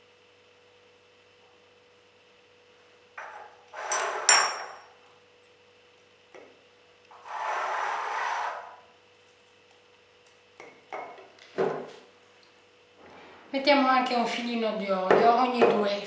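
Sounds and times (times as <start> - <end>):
rubbing scrape: 7.2 - 8.8.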